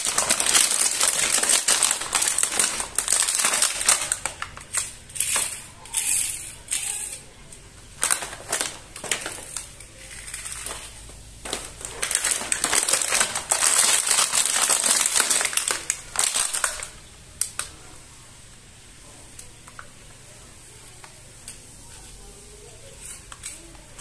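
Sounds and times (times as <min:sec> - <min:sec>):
plastic packaging crinkling: 0:00.0 - 0:17.8.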